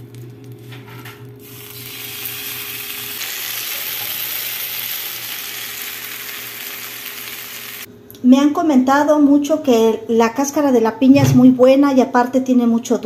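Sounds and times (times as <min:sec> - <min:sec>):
tomatoes sizzling in oil: 0:01.4 - 0:07.9.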